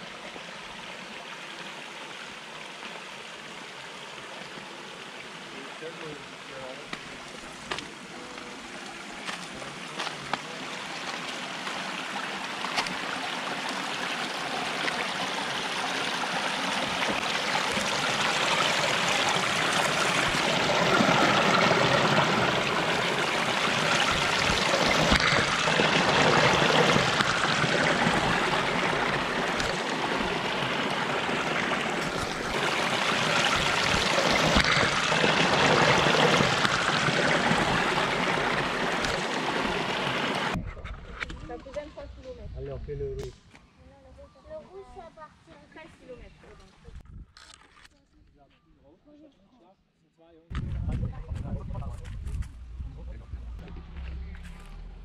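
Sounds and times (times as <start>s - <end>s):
stream splashing over rocks: 0.0s - 40.6s.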